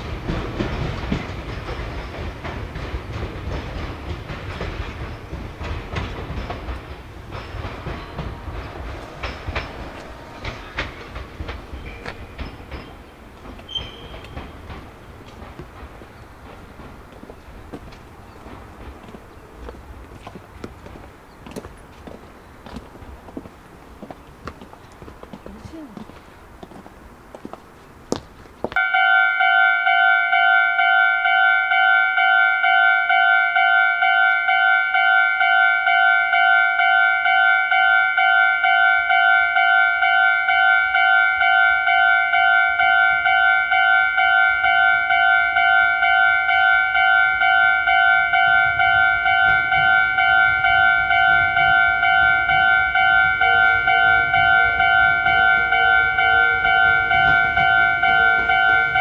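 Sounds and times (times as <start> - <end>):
train rumble: 0.0 - 59.0
level crossing warning bell: 28.8 - 59.0.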